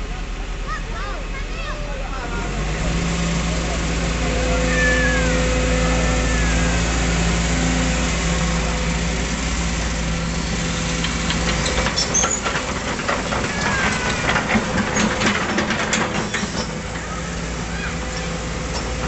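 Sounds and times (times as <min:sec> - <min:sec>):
excavator diesel engine running: 0:00.0 - 0:19.0.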